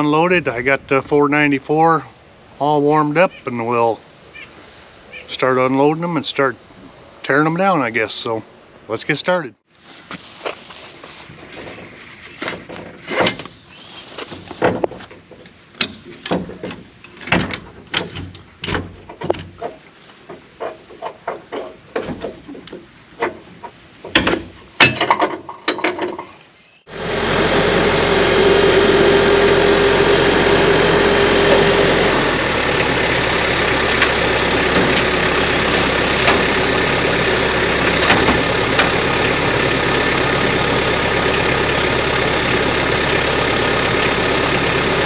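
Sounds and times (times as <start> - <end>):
tractor diesel engine running: 26.9 - 45.0.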